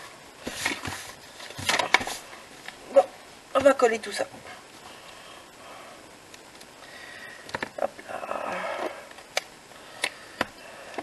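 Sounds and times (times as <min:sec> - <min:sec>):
paper rustle: 0:00.4 - 0:02.3.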